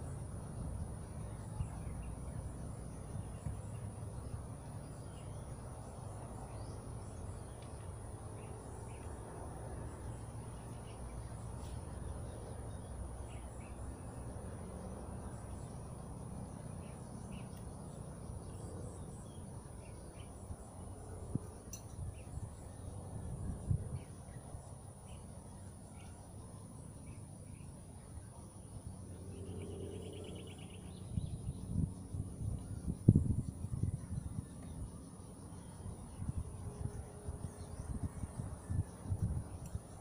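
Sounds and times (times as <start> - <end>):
insects droning: 0.0 - 40.0
bird chirps: 29.3 - 36.2.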